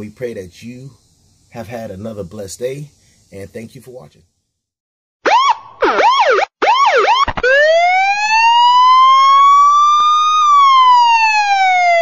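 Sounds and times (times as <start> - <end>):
electronic siren yelping and wailing: 5.2 - 12.0.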